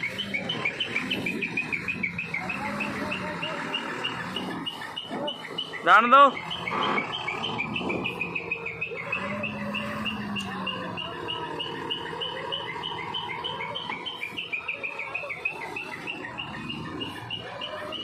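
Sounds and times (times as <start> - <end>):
diesel truck engine running: 0.0 - 18.0.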